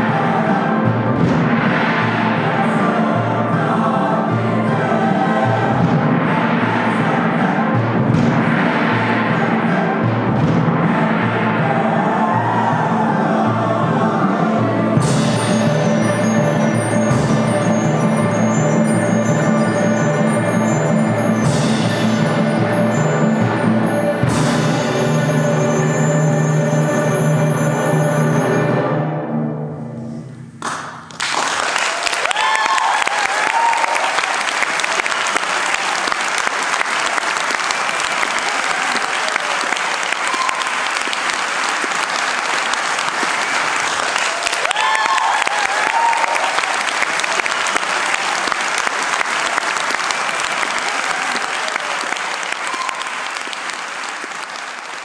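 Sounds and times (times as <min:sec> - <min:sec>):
choir and pianos chord: 0:00.0 - 0:07.8, 0:08.5 - 0:30.3
audience applause: 0:30.6 - 0:55.0
audience cheering: 0:31.2 - 0:55.0.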